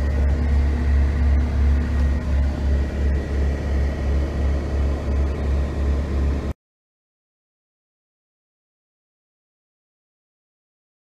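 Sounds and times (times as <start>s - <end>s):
diesel engine idling: 0.0s - 6.6s.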